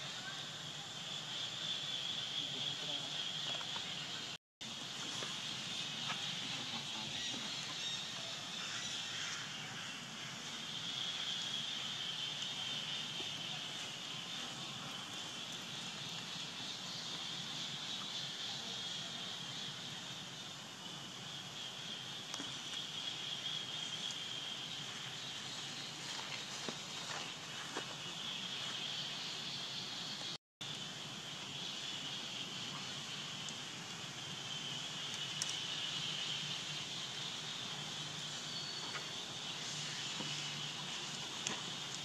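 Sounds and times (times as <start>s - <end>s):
insects droning: 0.0s - 42.0s.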